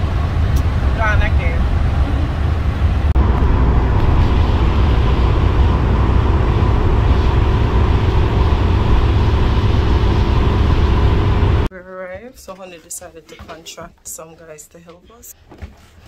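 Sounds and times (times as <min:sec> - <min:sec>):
vehicle road and engine rumble: 0:00.0 - 0:11.7.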